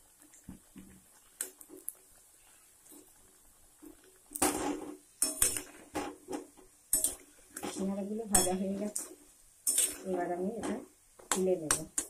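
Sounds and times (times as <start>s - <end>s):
metal spatula scraping a pan: 4.4s - 12.0s.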